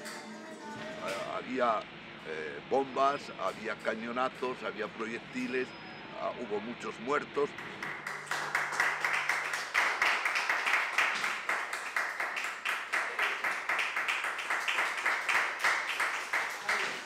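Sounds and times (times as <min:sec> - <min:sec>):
sharp hand claps: 0:07.5 - 0:17.0.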